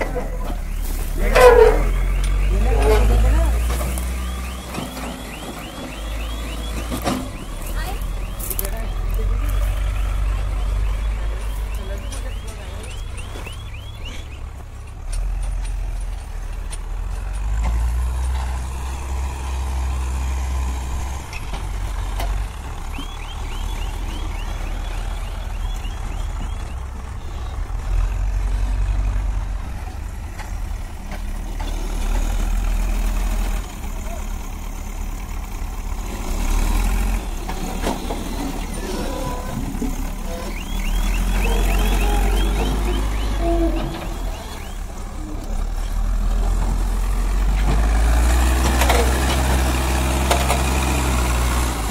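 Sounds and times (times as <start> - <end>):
diesel engine under load: 0.0 - 51.9
reversing alarm beeps: 0.2 - 14.8, 22.9 - 27.7, 38.3 - 45.0.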